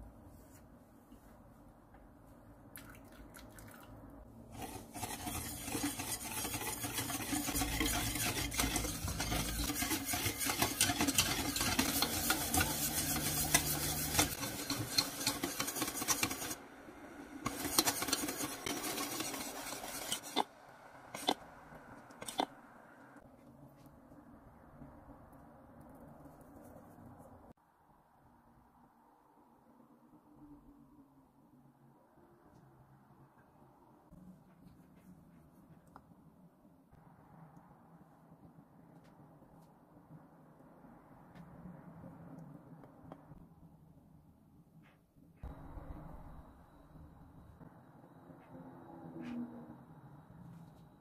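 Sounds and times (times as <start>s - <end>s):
whisk scraping metal pot: 4.5s - 16.6s, 17.4s - 20.5s, 21.1s - 21.4s, 22.2s - 22.5s.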